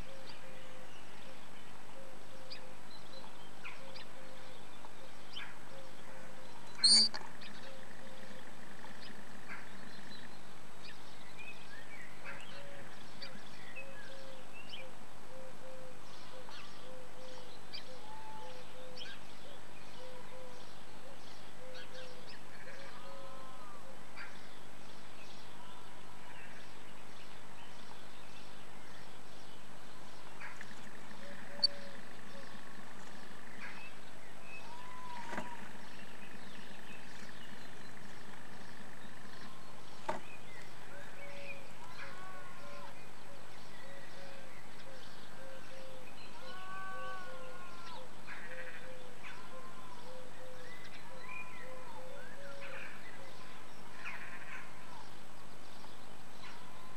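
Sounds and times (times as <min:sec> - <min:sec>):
microphone hiss and hum: 0:00.0 - 0:56.9
bird chirps: 0:06.6 - 0:07.2
repeated short bird note: 0:06.7 - 0:07.2.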